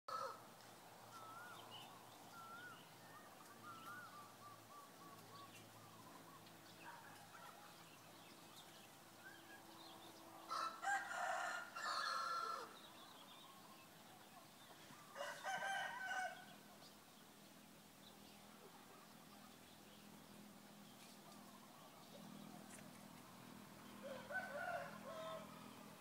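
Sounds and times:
rooster crowing: 0.1 - 0.4, 10.4 - 12.8, 15.1 - 16.6, 24.0 - 25.8
small birds chirping: 0.1 - 10.5, 12.6 - 26.0.

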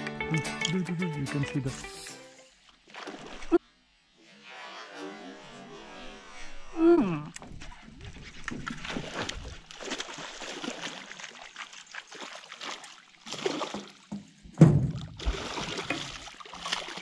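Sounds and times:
fish thrashing and splashing: 8.0 - 14.1, 15.0 - 17.0.

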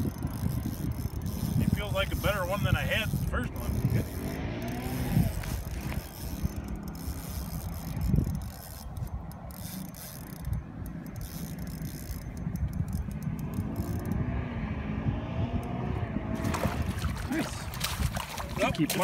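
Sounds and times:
fishing reel gears whirring and ticking: 0.0 - 14.3.

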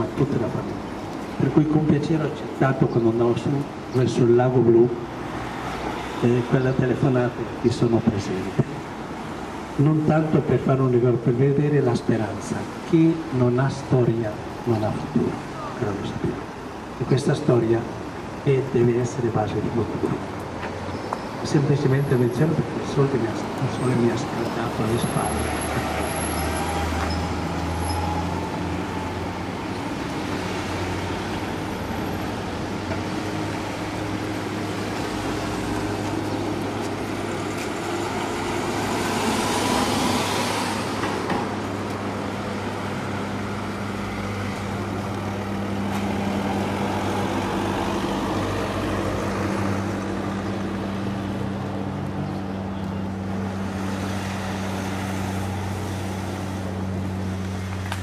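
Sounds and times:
traffic hum: 0.0 - 58.0
car passing by: 5.2 - 6.4, 23.3 - 58.0.

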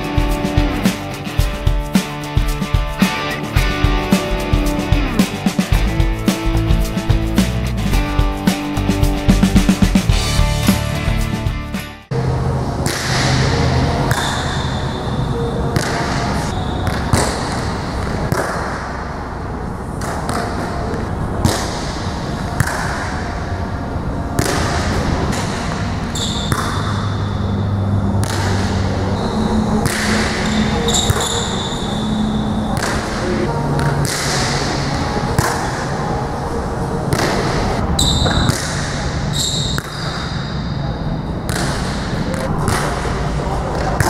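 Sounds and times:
steady hall hum: 12.1 - 44.0
volleyball slaps: 22.6 - 23.2, 24.4 - 25.7, 26.4 - 27.0, 28.2 - 28.9, 29.8 - 31.4, 32.8 - 34.6, 38.2 - 39.0, 41.5 - 43.2
high squeaks: 26.1 - 26.6, 30.4 - 32.8.

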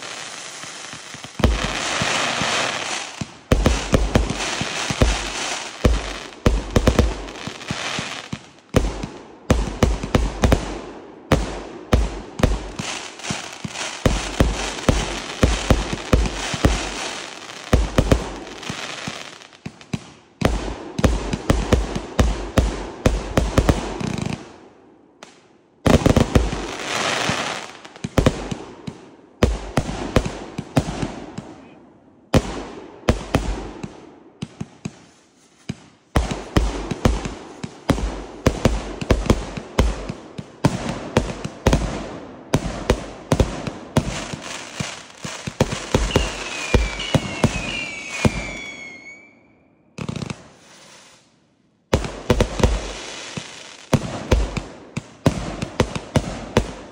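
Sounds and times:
firework shots and crackle: 0.0 - 49.4, 50.0 - 56.9
falling firework whistles: 45.9 - 49.8, 50.4 - 51.3.

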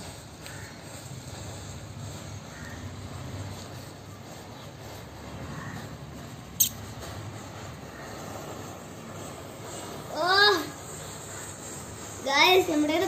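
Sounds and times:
sharp click: 6.6 - 6.8.

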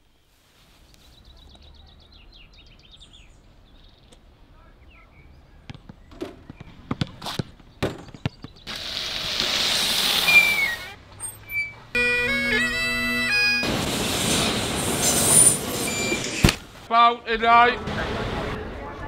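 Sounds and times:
basketball bouncing on court: 5.6 - 8.7
short high squeak: 9.8 - 13.7, 14.3 - 16.6
loud rushing noise: 13.4 - 16.9.

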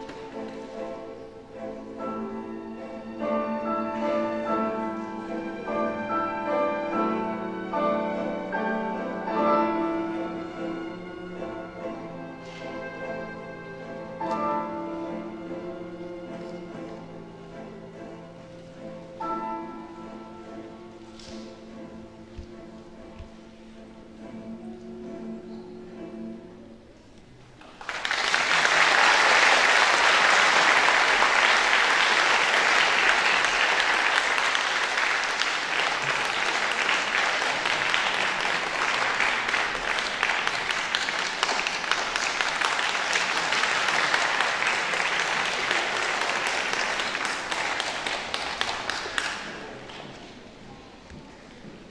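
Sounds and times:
audience applauding: 27.6 - 50.2.

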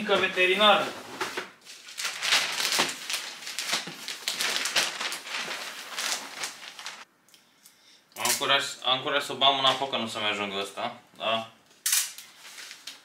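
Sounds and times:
wrapping paper rustling and crackling: 0.1 - 7.1, 12.2 - 13.0.

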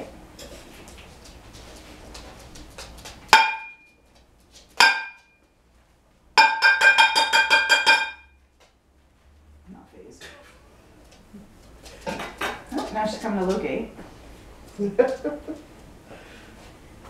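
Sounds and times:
metal pan struck ringing: 3.3 - 3.9, 4.8 - 5.3, 6.4 - 8.4.

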